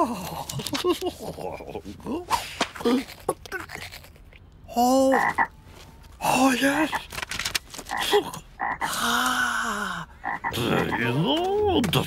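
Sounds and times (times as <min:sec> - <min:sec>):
cartoon frog croaks: 0:05.0 - 0:05.5, 0:07.9 - 0:09.2, 0:10.1 - 0:11.2.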